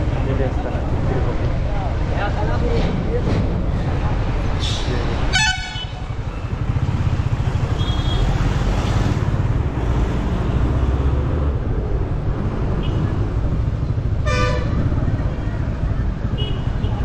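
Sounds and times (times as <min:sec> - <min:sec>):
road and traffic noise: 0:00.0 - 0:17.0
motorcycle engine rumble: 0:10.4 - 0:17.0.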